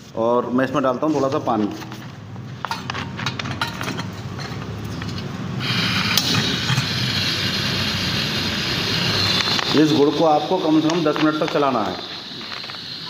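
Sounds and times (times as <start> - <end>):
gas burner flame hissing: 5.0 - 13.0
spark gas lighter clicking: 6.0 - 6.8, 8.8 - 9.8.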